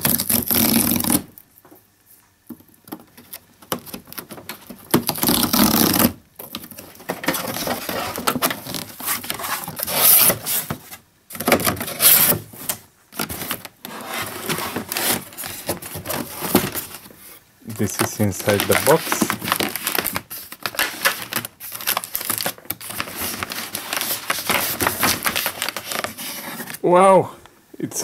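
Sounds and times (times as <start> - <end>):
cardboard box tearing open: 0.0 - 1.3, 5.0 - 6.2, 7.2 - 10.8, 11.4 - 17.1, 17.8 - 26.8
cardboard scraping and rubbing: 0.0 - 1.3, 5.0 - 6.2, 6.8 - 26.8.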